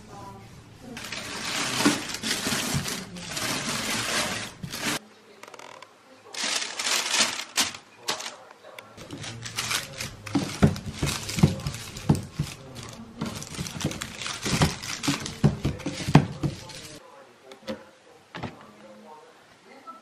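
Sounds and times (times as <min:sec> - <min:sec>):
plastic bin liner crinkling: 0:01.0 - 0:05.0, 0:06.4 - 0:17.0.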